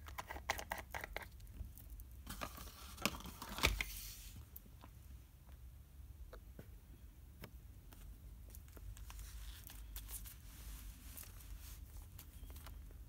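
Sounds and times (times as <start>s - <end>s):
hand rustling paper: 7.9s - 13.0s.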